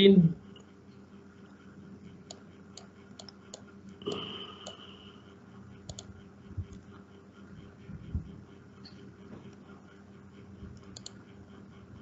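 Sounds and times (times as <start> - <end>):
computer mouse clicks: 2.2 - 4.9, 5.8 - 7.0, 10.7 - 11.2.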